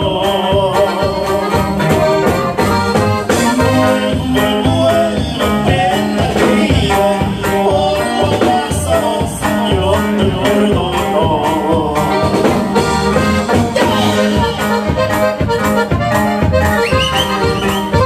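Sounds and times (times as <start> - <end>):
live band music: 0.0 - 18.0.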